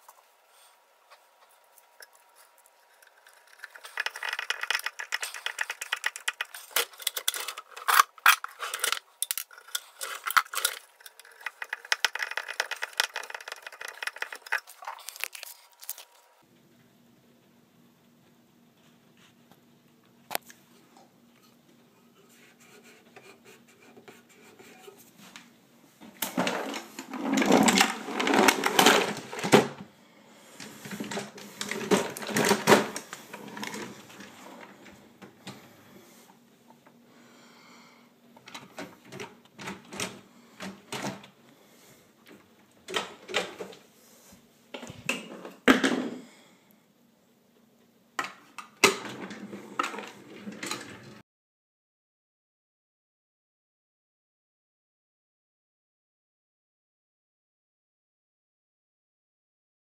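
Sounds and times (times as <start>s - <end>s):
jars and bottles rattling: 2.8s - 16.2s, 26.4s - 29.6s, 30.9s - 34.4s
wooden drawer opening and shutting: 26.2s - 29.8s, 48.8s - 51.2s.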